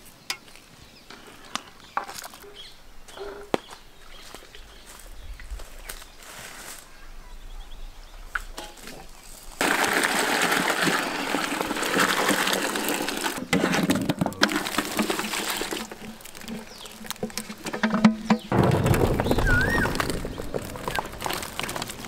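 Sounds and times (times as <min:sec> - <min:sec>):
water splashing into colander: 0:09.6 - 0:22.0.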